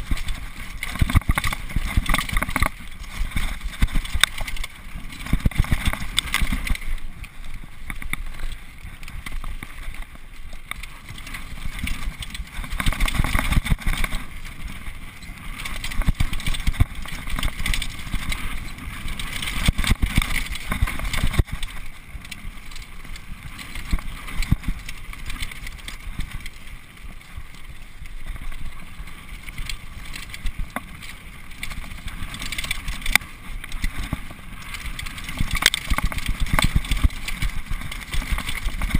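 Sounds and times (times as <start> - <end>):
bike knocking over bumps: 0.0 - 6.9
bike and chain rattling: 0.0 - 38.9
tyres on dirt: 0.0 - 38.9.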